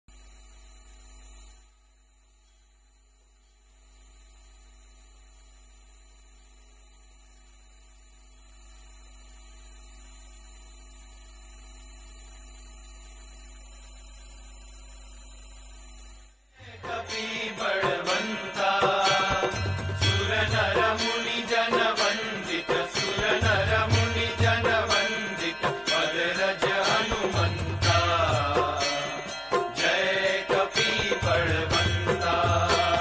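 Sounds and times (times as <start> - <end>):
faint electrical mains hum: 0.1 - 16.9.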